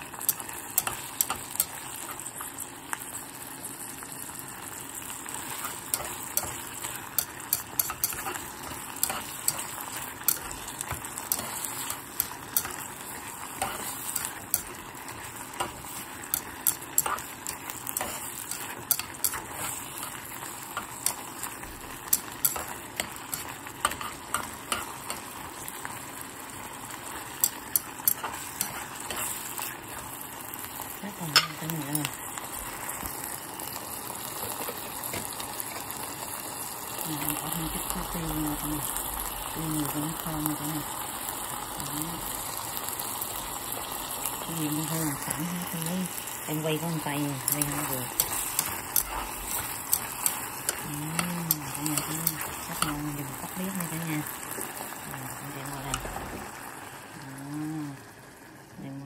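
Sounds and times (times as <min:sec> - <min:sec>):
meat and onions sizzling in pot: 0:00.0 - 0:59.0
tongs clicking against pot: 0:05.7 - 0:12.9, 0:15.5 - 0:25.3, 0:31.3 - 0:32.0, 0:47.2 - 0:53.2.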